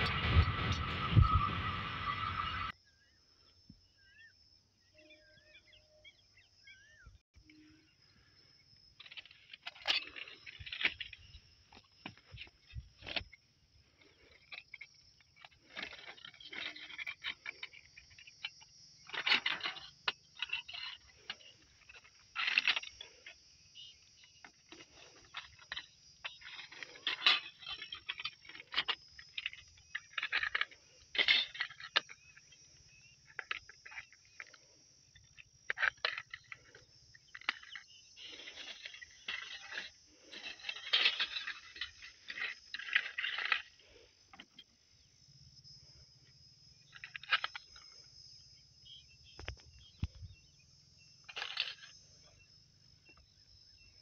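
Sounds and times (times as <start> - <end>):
debris crackling and crunching: 35.7 - 44.6.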